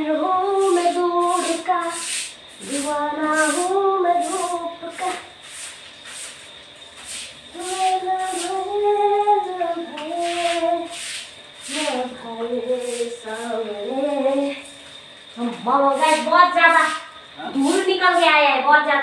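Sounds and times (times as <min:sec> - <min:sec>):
woman singing slow tune: 0:00.0 - 0:05.4, 0:07.5 - 0:11.0, 0:11.6 - 0:14.8, 0:15.4 - 0:19.0
soft rubbing strokes of cleaning: 0:00.4 - 0:09.1, 0:10.0 - 0:14.6.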